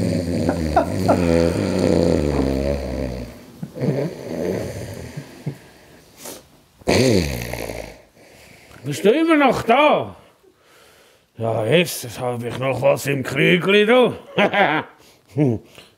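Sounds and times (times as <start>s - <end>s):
man snoring loudly: 0.0s - 5.5s, 6.8s - 8.1s.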